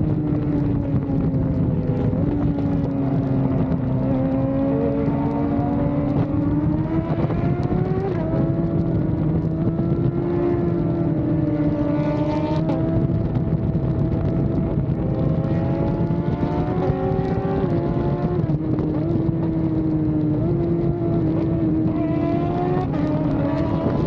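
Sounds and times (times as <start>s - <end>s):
motorcycle engine cruising: 0.0s - 24.0s.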